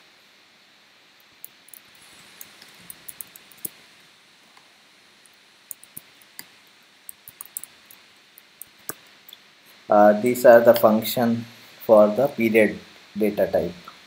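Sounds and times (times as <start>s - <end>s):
computer keyboard typing: 1.4s - 3.8s, 5.7s - 6.5s, 7.1s - 9.0s.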